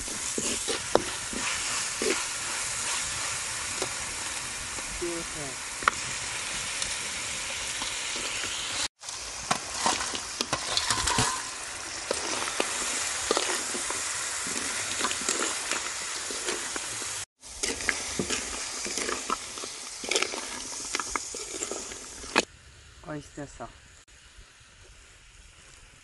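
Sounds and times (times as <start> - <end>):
spatula scraping a pan: 0.0 - 4.3, 12.0 - 22.5
food sizzling in a pan: 0.0 - 26.0.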